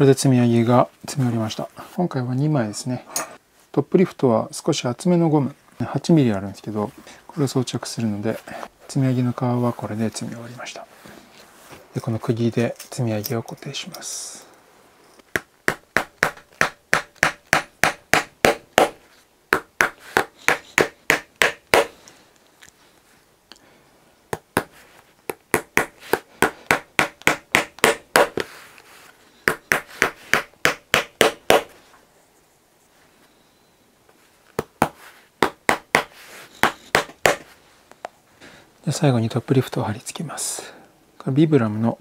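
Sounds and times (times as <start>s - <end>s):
hammer tapping nails into leather: 15.3s - 21.9s, 24.3s - 28.5s, 29.5s - 31.7s, 34.6s - 37.5s.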